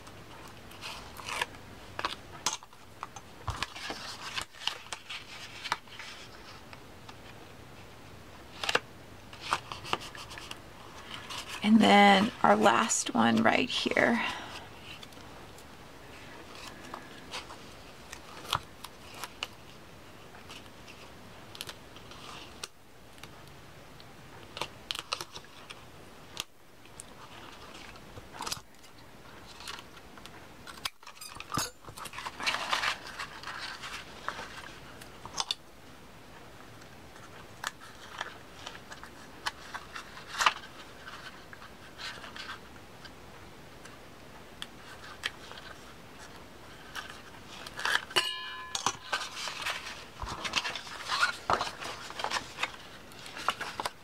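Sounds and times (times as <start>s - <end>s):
paper rustling and clicking: 0.3s - 7.4s, 8.5s - 12.4s, 16.5s - 19.8s, 20.4s - 35.6s, 36.8s - 43.1s, 48.8s - 54.0s.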